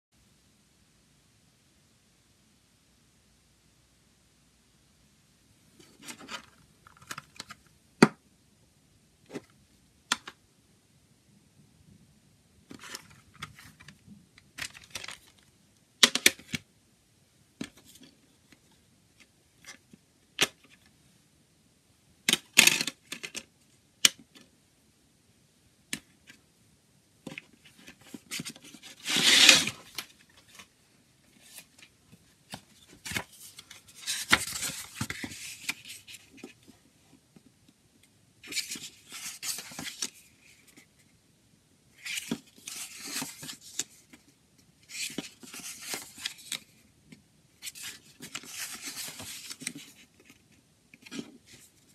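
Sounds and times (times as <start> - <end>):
paper rustle: 14.6 - 15.5, 27.6 - 30.7, 32.5 - 36.7, 38.4 - 40.8, 42.0 - 46.8, 47.6 - 51.9.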